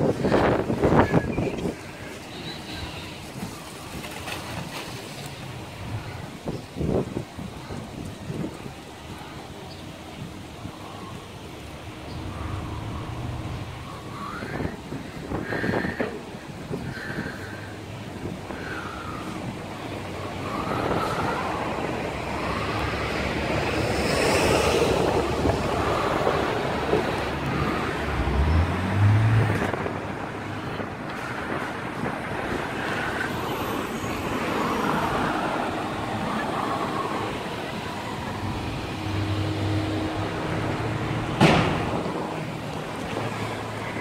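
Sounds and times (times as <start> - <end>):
cars passing: 0.0 - 44.0.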